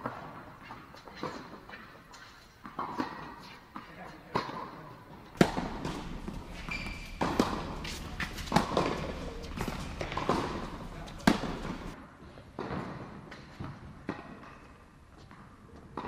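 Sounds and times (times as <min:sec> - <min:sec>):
racket hitting ball with echo: 0:02.6 - 0:12.0.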